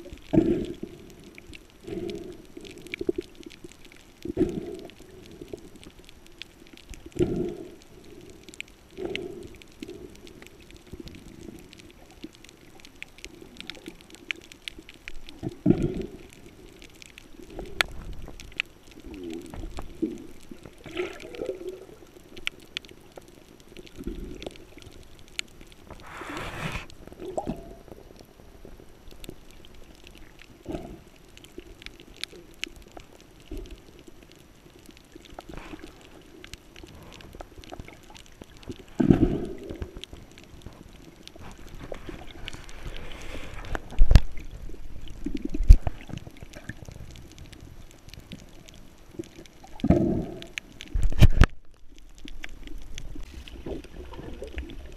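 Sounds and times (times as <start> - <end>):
bubbling exhaled air: 0.0 - 3.5, 4.2 - 5.8, 7.0 - 12.0, 15.2 - 22.4, 25.9 - 28.1, 30.6 - 31.2, 38.8 - 40.2, 49.7 - 51.5
diver breathing through regulator: 25.9 - 27.0, 41.9 - 44.0.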